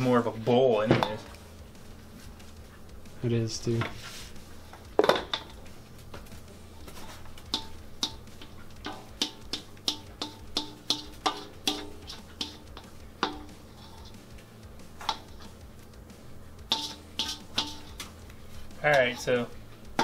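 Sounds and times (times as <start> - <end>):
plucked percussive music: 4.8 - 20.0.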